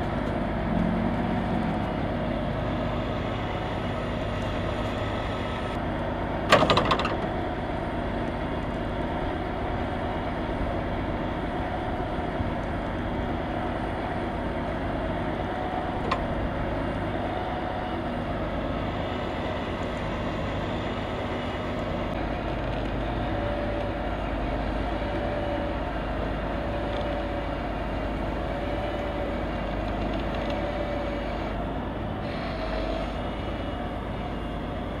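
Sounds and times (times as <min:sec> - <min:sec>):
diesel truck engines rumbling: 0:00.0 - 0:35.0.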